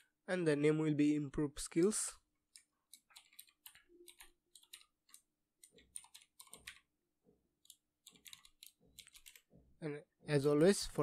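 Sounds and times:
keyboard typing: 0:02.4 - 0:09.6.

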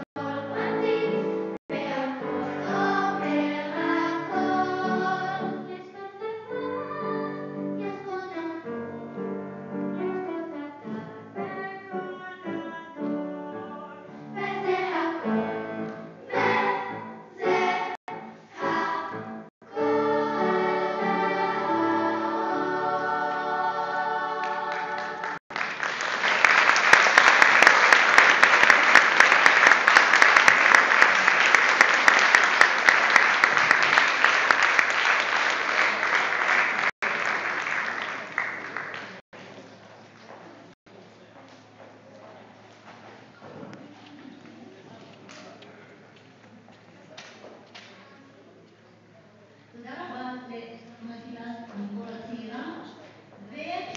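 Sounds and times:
children's choir singing: 0:00.0 - 0:08.7, 0:10.8 - 0:25.4
audience applause: 0:24.4 - 0:39.2.

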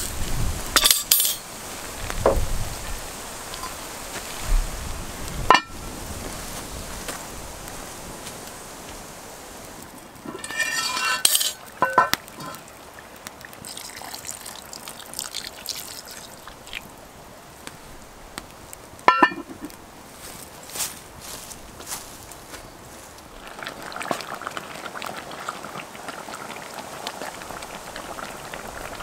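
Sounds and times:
stew sizzling: 0:00.0 - 0:29.0
cast iron lid scraping and clanking: 0:00.8 - 0:01.5, 0:10.2 - 0:12.6, 0:19.1 - 0:19.8.

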